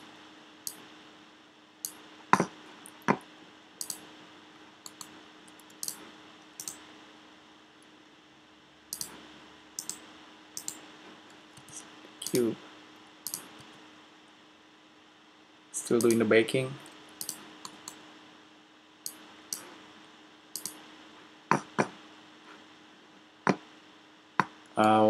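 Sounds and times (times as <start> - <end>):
faint hum: 0.0 - 25.0
mouse and keyboard clicks: 3.8 - 4.0, 4.8 - 6.0, 6.6 - 6.8, 8.9 - 9.2, 9.8 - 10.0, 10.6 - 10.8, 13.2 - 13.7, 17.2 - 18.0, 20.6 - 20.8.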